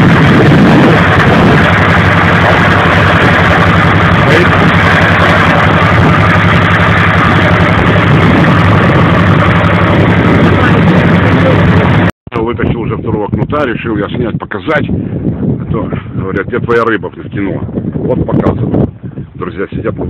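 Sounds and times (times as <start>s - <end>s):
motorboat engine running: 0.0s - 12.2s
rush of wind and water: 0.0s - 20.0s.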